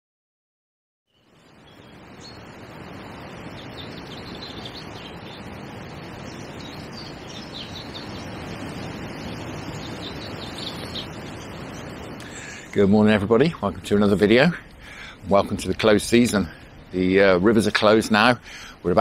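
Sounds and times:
small birds chirping: 0:01.1 - 0:19.0
strong wind on microphone: 0:01.5 - 0:12.5.

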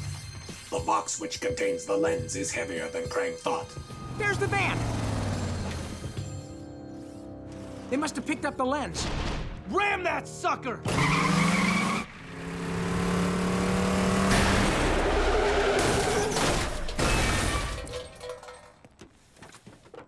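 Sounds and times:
tires spinning: 0:04.0 - 0:06.1, 0:10.9 - 0:16.8
van engine revving: 0:04.0 - 0:06.1, 0:10.9 - 0:16.4.

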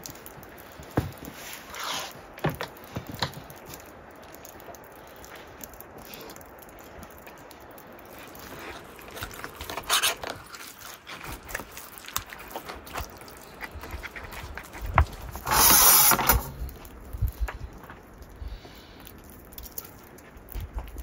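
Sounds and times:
hands squelching marinade into meat: 0:04.3 - 0:15.4.

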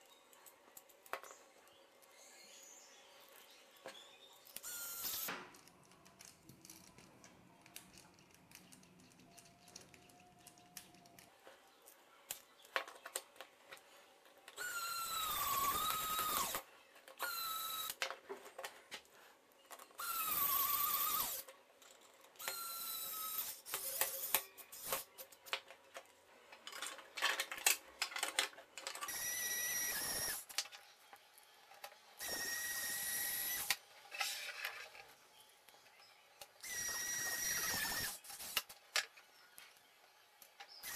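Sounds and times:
small parts clicking: 0:04.5 - 0:11.3
electric screwdriver whining: 0:14.6 - 0:16.6, 0:29.1 - 0:30.4, 0:32.2 - 0:33.8, 0:36.6 - 0:38.6.

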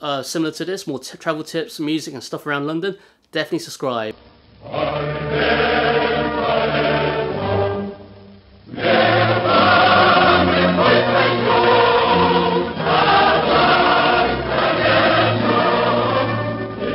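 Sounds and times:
choir singing held chords: 0:04.5 - 0:16.9.

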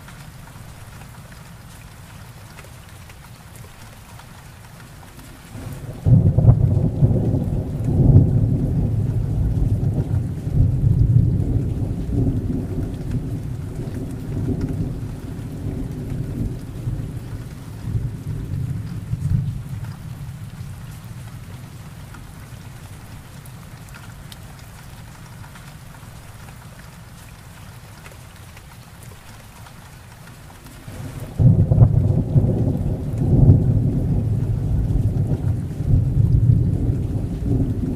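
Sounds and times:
heavy rain: 0:00.0 - 0:37.9
rain pattering on leaves and grass: 0:00.0 - 0:37.9
rolling thunder: 0:05.6 - 0:20.7, 0:30.9 - 0:37.9.

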